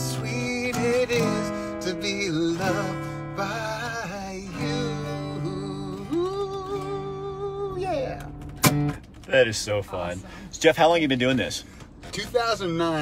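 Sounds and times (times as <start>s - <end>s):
man singing: 0.0s - 7.8s
acoustic guitar strummed: 0.0s - 9.3s.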